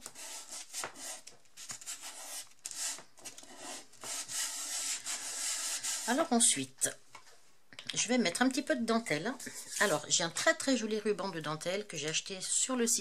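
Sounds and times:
hands rubbing paper: 0.0s - 6.3s.

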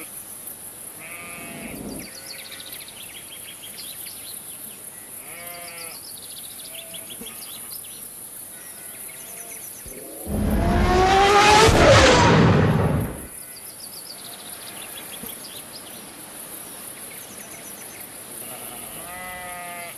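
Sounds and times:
motorcycle engine passing at speed: 9.9s - 13.3s.

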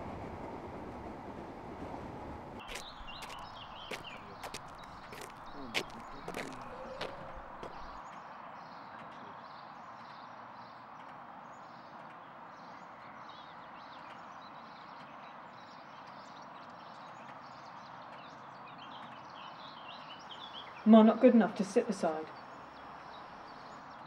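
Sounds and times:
steady outdoor hiss: 2.6s - 8.0s.

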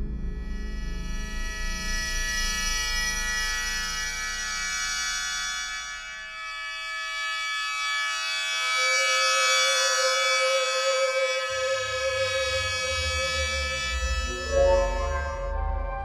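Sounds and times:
low pulsing bass: 0.0s - 4.7s, 11.5s - 16.0s
bright sustained drone: 8.6s - 16.0s.

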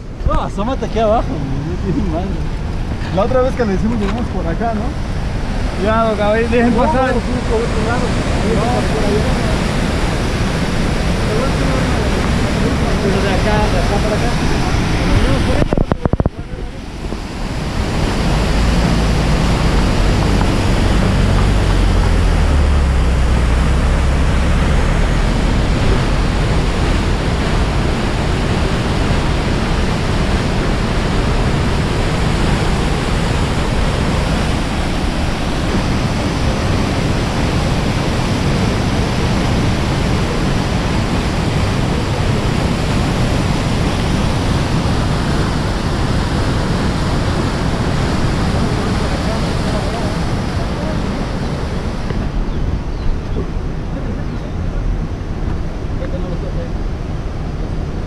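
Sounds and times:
river rapids roaring over rocks: 0.0s - 52.9s
low rumble: 6.4s - 38.3s.

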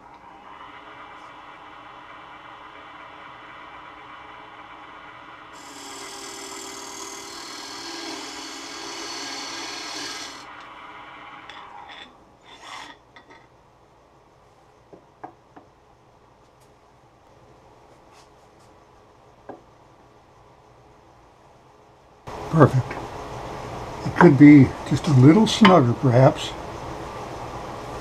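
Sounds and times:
lathe tool scraping wood: 0.2s - 10.6s, 11.2s - 13.0s.

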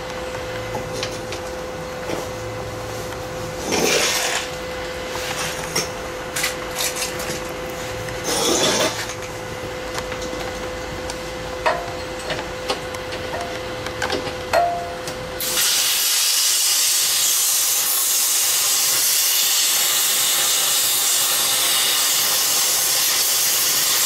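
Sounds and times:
steady hum: 0.0s - 15.6s
plasma cutter hissing blasts: 15.4s - 24.0s.

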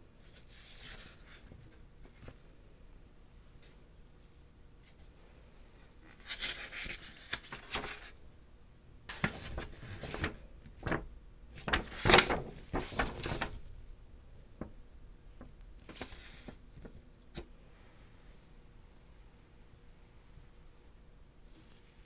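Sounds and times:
paper rustling and crinkling: 0.2s - 2.5s, 6.0s - 8.2s, 9.1s - 13.7s, 15.8s - 17.5s.

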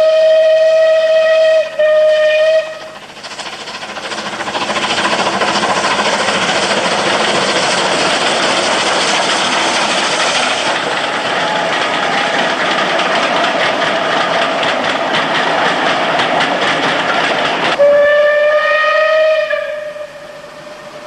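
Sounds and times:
steam whistle blast: 0.0s - 3.0s, 17.8s - 21.0s
locomotive exhaust beats: 0.0s - 21.0s
train running noise: 0.0s - 21.0s.

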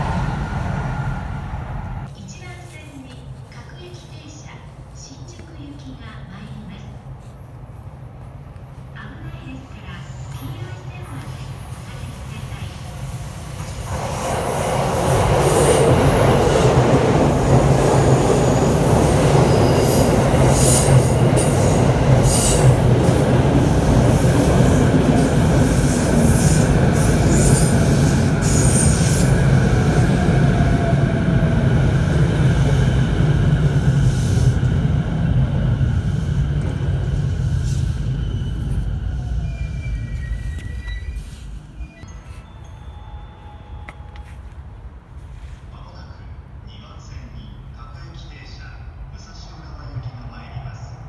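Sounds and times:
train wheels rumbling on rail: 0.0s - 2.1s, 9.8s - 42.0s.

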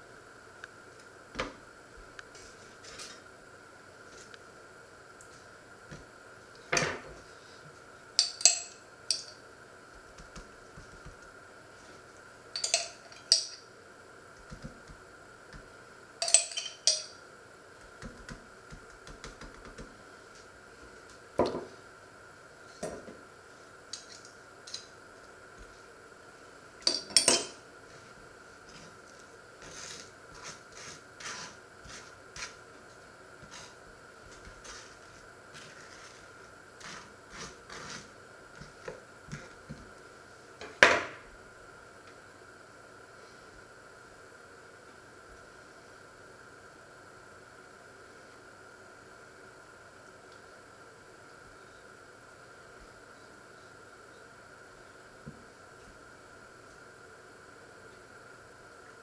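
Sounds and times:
knife clinking against jar: 12.6s - 13.6s, 16.2s - 17.1s
knife scraping: 29.6s - 32.6s, 33.4s - 38.2s.

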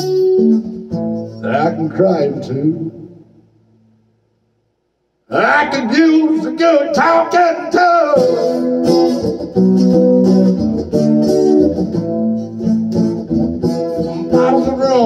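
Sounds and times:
guitar strummed and picked: 0.0s - 3.9s, 5.3s - 15.0s
man singing: 5.3s - 8.6s, 14.1s - 15.0s.

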